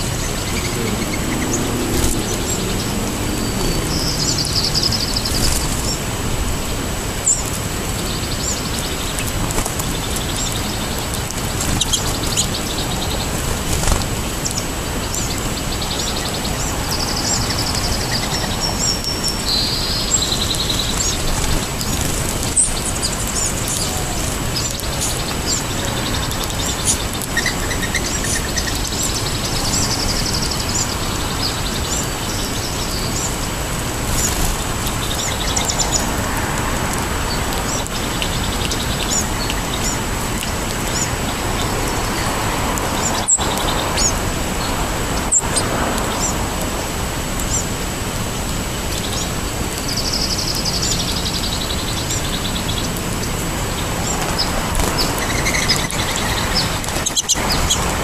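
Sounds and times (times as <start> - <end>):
songbirds chirping: 0.0 - 58.0
steady background noise: 0.0 - 58.0.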